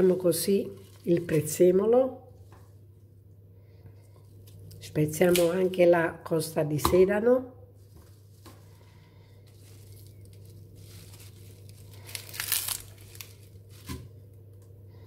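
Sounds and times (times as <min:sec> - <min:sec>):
celery snapping and tearing: 0:04.4 - 0:05.7, 0:09.6 - 0:14.1.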